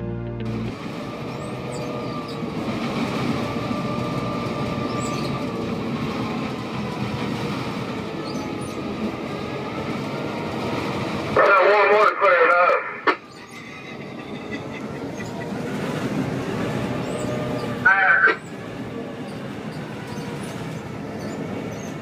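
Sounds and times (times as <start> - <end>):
freight train rumbling: 0.0 - 22.0
water sloshing in rail car: 0.8 - 11.4
faint wheel squeal: 13.3 - 15.5, 19.2 - 22.0.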